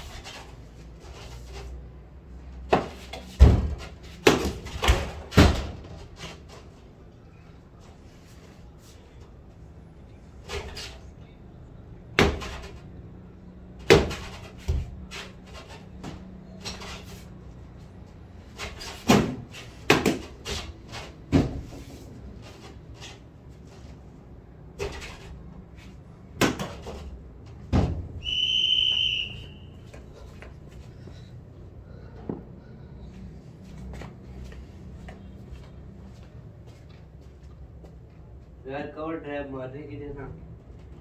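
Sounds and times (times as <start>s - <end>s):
high steady whistling tone: 28.2s - 30.0s.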